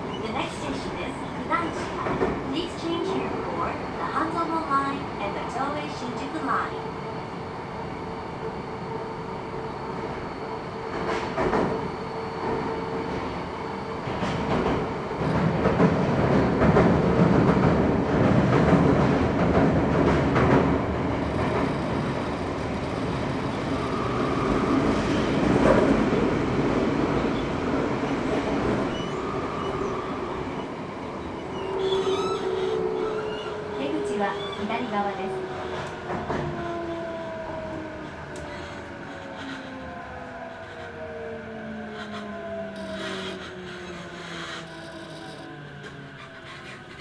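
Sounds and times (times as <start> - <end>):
subway train rumble: 0.0 - 47.0.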